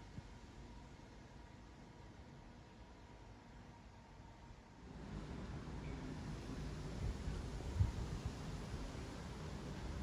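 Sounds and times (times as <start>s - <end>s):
distant jet engine rumble: 4.8s - 10.0s.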